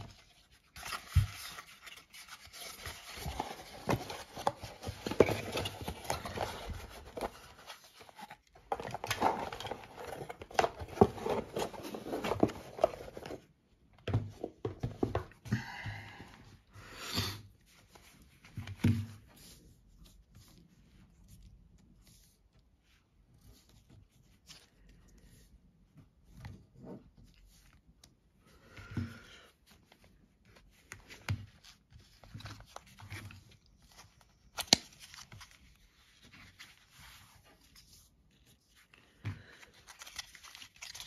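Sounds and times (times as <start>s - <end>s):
cardboard rustling and scraping: 0.0s - 15.4s.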